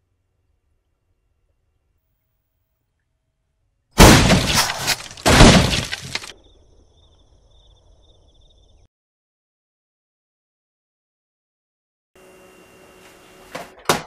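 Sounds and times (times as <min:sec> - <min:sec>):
boot stamping down with rattle: 0:04.0 - 0:06.3.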